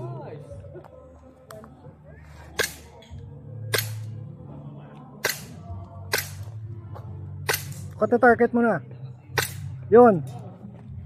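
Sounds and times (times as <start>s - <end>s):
airsoft pistol shots: 3.7s - 4.1s, 5.2s - 6.5s, 7.4s - 7.9s.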